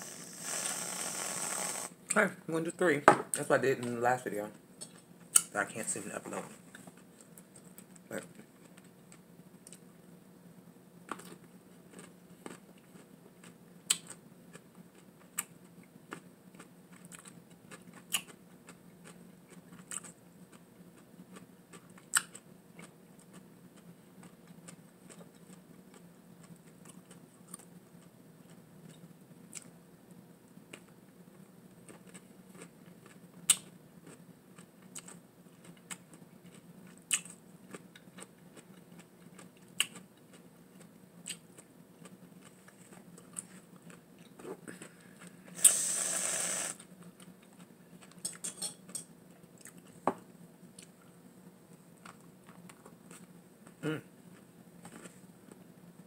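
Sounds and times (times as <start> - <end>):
person chewing with crunches: 0.0 - 1.9, 11.1 - 29.7, 31.9 - 50.0, 51.9 - 55.6
faint low hum: 0.0 - 56.0.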